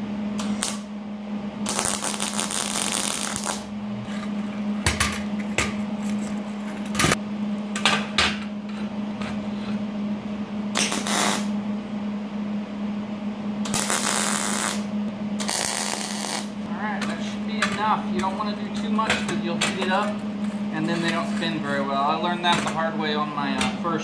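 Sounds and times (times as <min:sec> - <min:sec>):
steady hum: 0:00.0 - 0:24.0
welding arc crackling: 0:00.4 - 0:00.9, 0:01.6 - 0:03.7, 0:10.8 - 0:11.5, 0:13.7 - 0:16.6.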